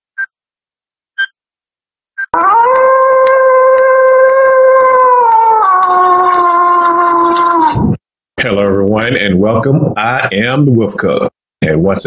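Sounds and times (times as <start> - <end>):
electronic countdown beeps: 1.2 - 1.4, 2.2 - 2.4
person howling like a wolf: 2.4 - 8.0.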